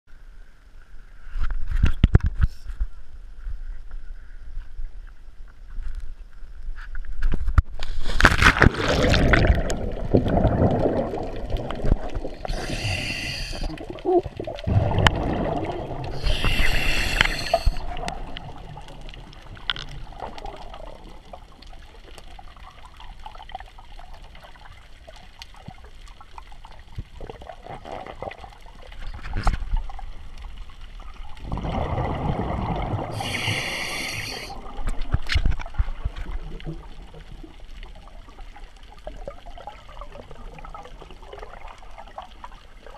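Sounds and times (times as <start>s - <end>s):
exhaled bubbles gurgling: 8.3s - 24.7s, 31.2s - 42.9s
scuba regulator hiss: 12.4s - 13.8s, 16.2s - 17.8s, 33.2s - 34.6s
churning water: 13.6s - 19.3s.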